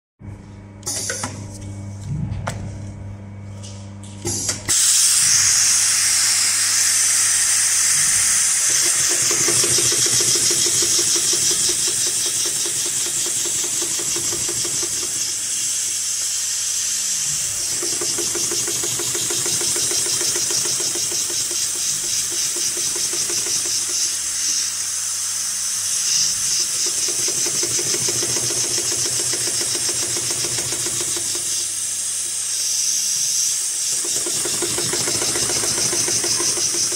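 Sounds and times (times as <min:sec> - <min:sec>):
loud steady hiss: 0:04.7 - 0:36.9
sewing machine clattering: 0:08.8 - 0:15.2, 0:17.4 - 0:24.0, 0:26.9 - 0:31.5, 0:33.9 - 0:36.9.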